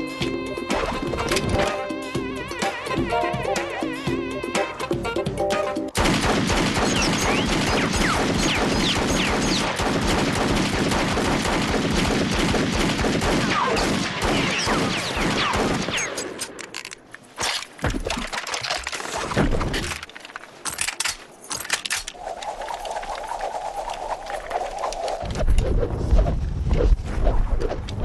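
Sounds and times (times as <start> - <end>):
music: 0.0 - 6.0
pistol gunfire: 6.0 - 16.2.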